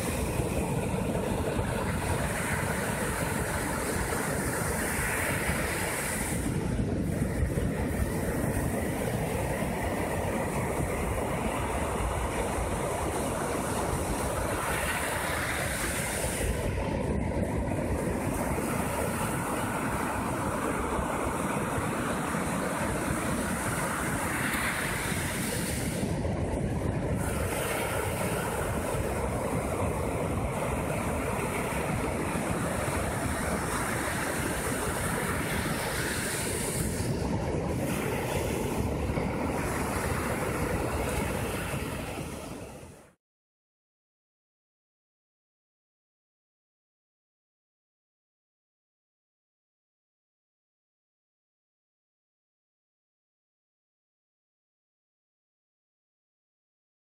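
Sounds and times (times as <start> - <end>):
wind buffeting microphone: 0.0 - 43.0
surf breaking on beach: 0.0 - 43.2.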